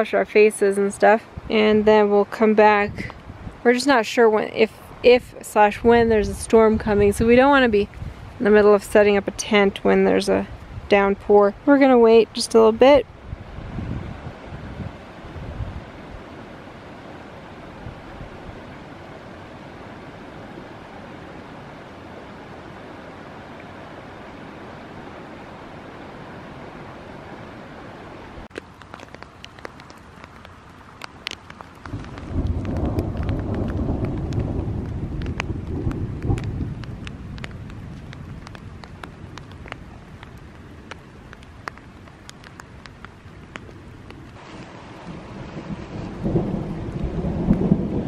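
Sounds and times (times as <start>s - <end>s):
mountain stream rushing: 12.0s - 34.0s, 37.9s - 48.0s
raindrops ticking: 28.5s - 48.0s
thunder rumbling: 31.8s - 40.5s, 43.5s - 48.0s.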